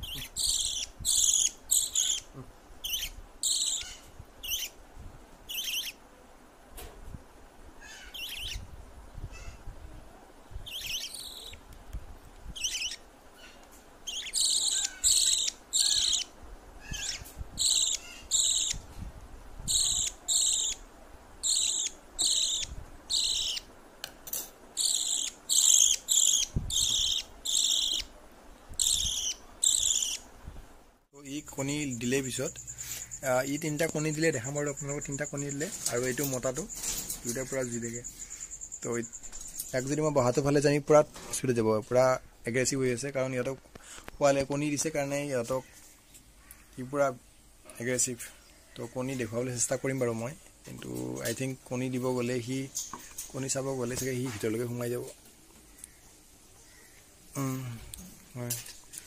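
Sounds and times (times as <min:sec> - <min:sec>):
bird chicks chirping: 0:00.0 - 0:04.8, 0:05.5 - 0:06.0, 0:07.8 - 0:08.7, 0:10.5 - 0:11.7, 0:12.5 - 0:19.0, 0:19.6 - 0:23.7, 0:24.8 - 0:30.3, 0:31.5 - 0:40.6.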